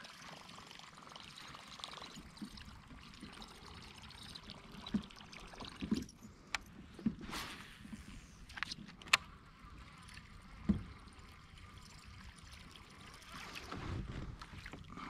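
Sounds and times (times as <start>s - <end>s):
water lapping against kayak hull: 13.1s - 15.0s.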